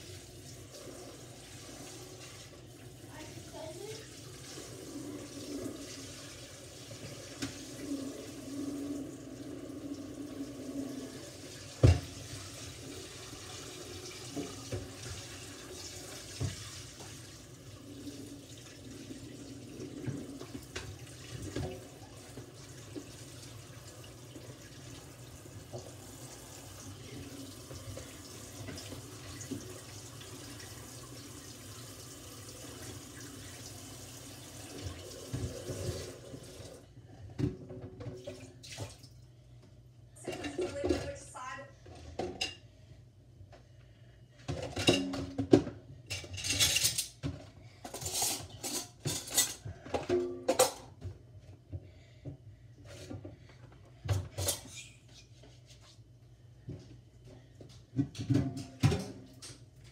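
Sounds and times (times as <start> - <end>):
faucet running into metal sink: 0.0 - 36.8
dishes rinsed and scrubbed: 0.0 - 39.2, 40.2 - 42.8, 44.3 - 59.9
dishes knocking in sink: 44.5 - 45.8.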